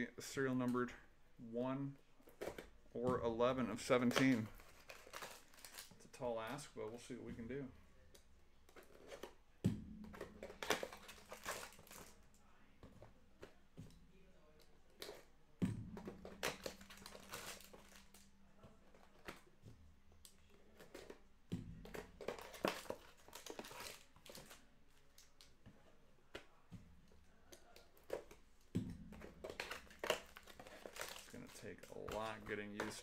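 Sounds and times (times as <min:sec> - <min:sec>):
cards handled scraping: 0:03.7 - 0:06.0, 0:08.7 - 0:09.4, 0:10.1 - 0:12.2, 0:16.0 - 0:24.7, 0:27.5 - 0:33.0
foil wrappers crinkling: 0:03.8 - 0:06.6, 0:10.4 - 0:12.3, 0:16.0 - 0:19.4, 0:21.9 - 0:25.4, 0:29.1 - 0:33.0.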